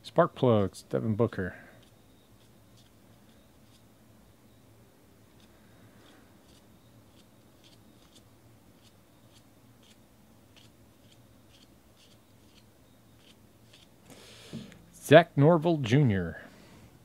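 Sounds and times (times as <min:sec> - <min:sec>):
cards sliding swishes: 0:13.2 - 0:14.9.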